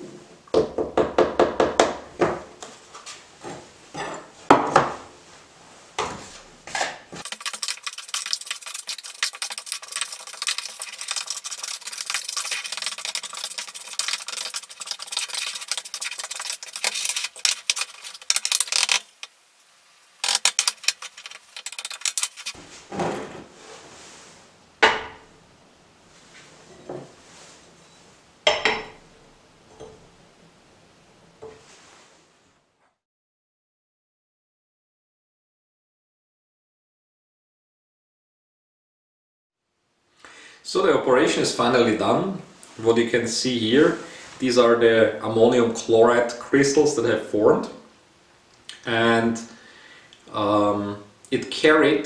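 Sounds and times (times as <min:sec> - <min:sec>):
spoon scraping powder in tub: 0:07.2 - 0:19.3, 0:20.2 - 0:22.6
glass dish knocking on hot plate: 0:28.5 - 0:29.0.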